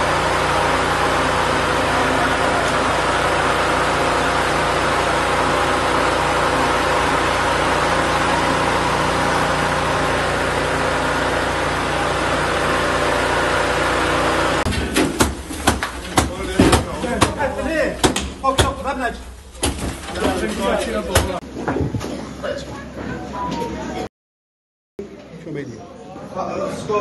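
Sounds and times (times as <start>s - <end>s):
small petrol engine running: 0.0s - 14.7s.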